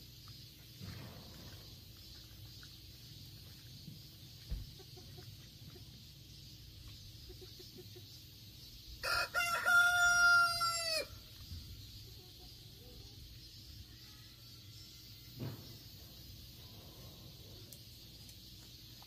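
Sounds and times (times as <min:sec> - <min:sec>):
rooster crowing: 0:09.0 - 0:11.2.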